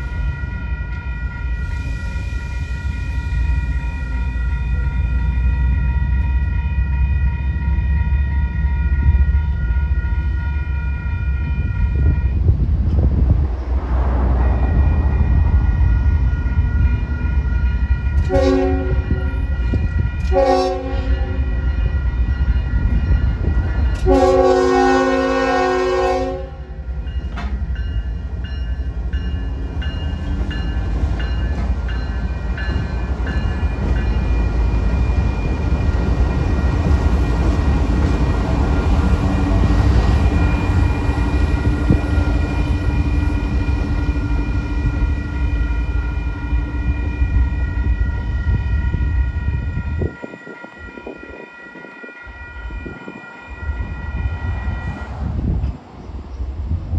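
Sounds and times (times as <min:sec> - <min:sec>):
crossing signal bell ringing: 0:00.0 - 0:12.5, 0:14.6 - 0:25.0, 0:26.7 - 0:55.0
locomotive rumbling past: 0:00.0 - 0:56.9
locomotive horn blasts: 0:18.1 - 0:21.7, 0:24.0 - 0:26.8.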